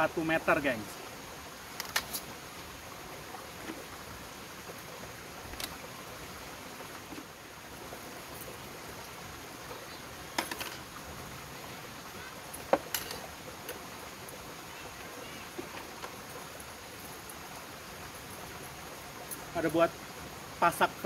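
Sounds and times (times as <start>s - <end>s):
background hiss: 0.0s - 21.0s
metal tent pegs clinking: 1.8s - 2.3s, 10.4s - 10.8s, 12.6s - 13.3s.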